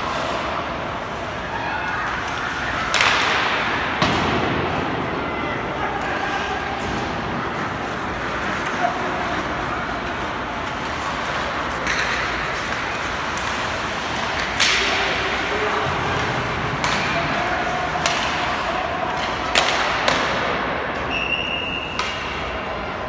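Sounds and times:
hockey sticks and puck cracking: 0.0 - 5.2, 6.0 - 22.8
players hitting the boards: 2.4 - 5.0, 10.9 - 21.1
referee's whistle: 21.1 - 22.0.

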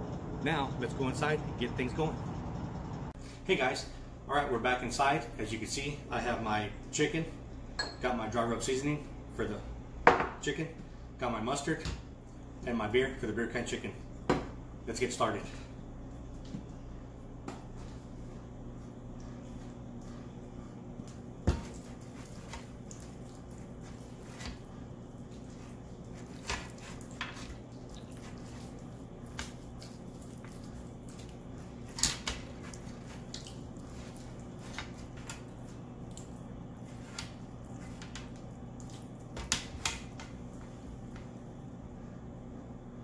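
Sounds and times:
low hum: 0.0 - 3.2.

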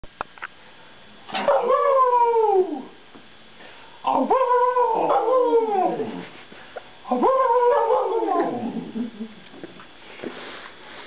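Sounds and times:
puppy howling: 1.4 - 3.0, 4.1 - 6.2, 7.1 - 9.1
man howling: 1.6 - 3.0, 4.1 - 6.2, 7.1 - 9.2.

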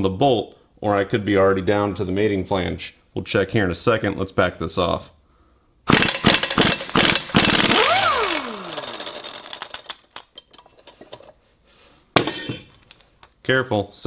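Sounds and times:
impact wrench hammering: 5.9 - 10.2.

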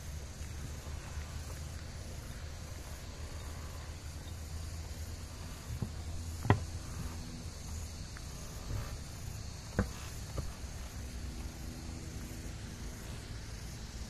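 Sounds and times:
sharp knocks: 5.8 - 6.8.

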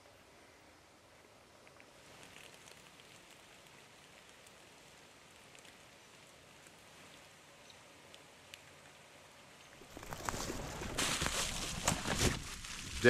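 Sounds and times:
faint outdoor hiss: 0.0 - 13.0
small ticks: 1.5 - 9.0.

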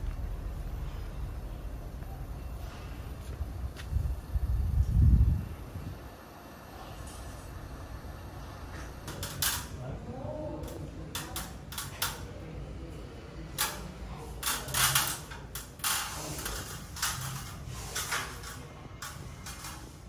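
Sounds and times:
low steady hum: 0.0 - 20.0
tools and parts clattering: 8.7 - 9.8, 13.5 - 20.0.

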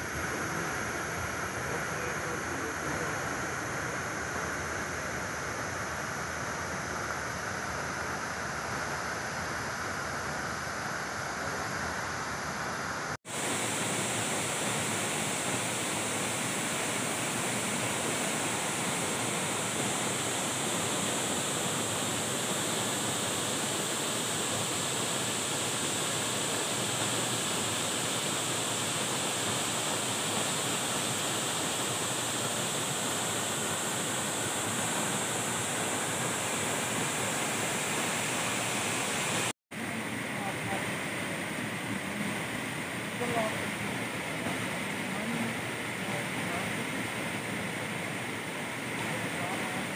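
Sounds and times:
waterfall rushing: 13.3 - 49.9.

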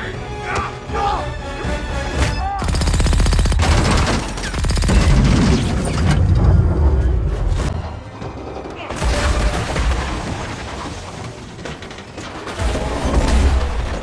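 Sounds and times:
action film music: 0.0 - 10.4
rapid gunshots: 2.6 - 5.9.

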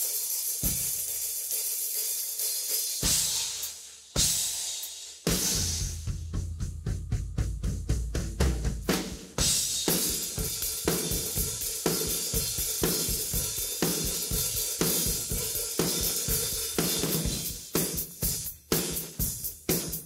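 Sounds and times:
hi-hat strokes: 0.0 - 6.0, 9.6 - 20.0
hard drum hits: 5.3 - 11.5.

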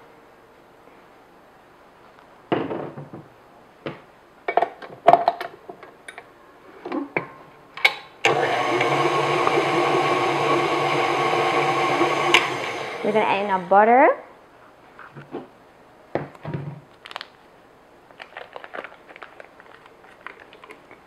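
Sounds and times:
stand mixer running: 8.2 - 13.7.

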